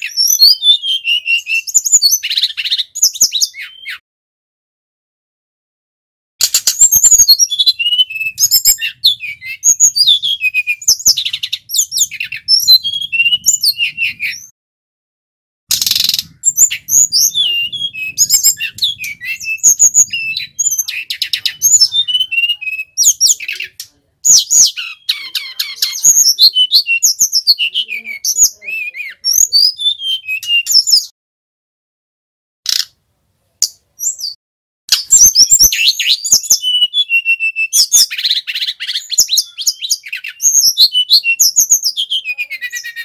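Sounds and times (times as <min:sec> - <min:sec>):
bird singing high chirps: 0:00.0 - 0:04.0, 0:06.4 - 0:14.5, 0:15.7 - 0:31.1, 0:33.6 - 0:43.0.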